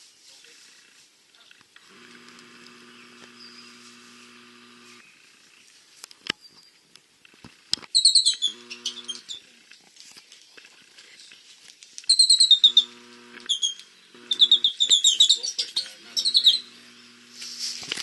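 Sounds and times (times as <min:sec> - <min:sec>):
rapid high-pitched chirps: 0:08.0 - 0:09.4, 0:12.1 - 0:17.4.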